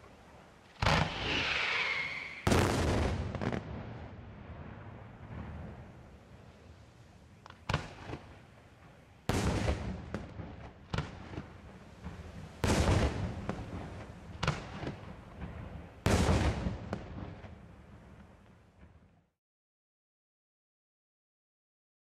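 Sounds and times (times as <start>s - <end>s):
fireworks bursting with echo: 0.0s - 19.2s
smaller firework reports: 0.6s - 17.6s.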